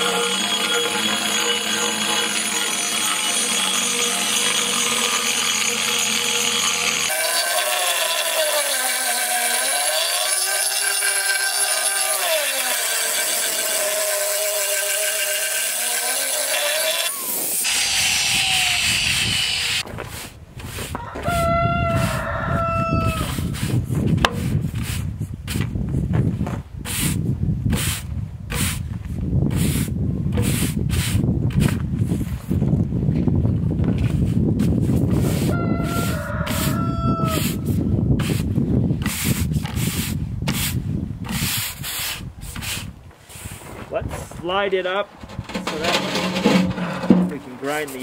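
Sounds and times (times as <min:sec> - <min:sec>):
angle grinder on concrete: 0:00.0 - 0:21.4, 0:34.0 - 0:42.9, 0:45.2 - 0:48.0
brush scrubbing wet concrete: 0:45.5 - 0:48.0.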